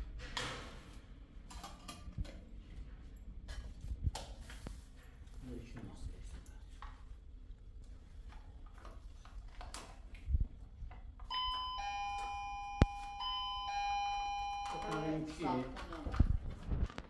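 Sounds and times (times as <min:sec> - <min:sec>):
electronic doorbell chime tune: 0:11.3 - 0:15.4.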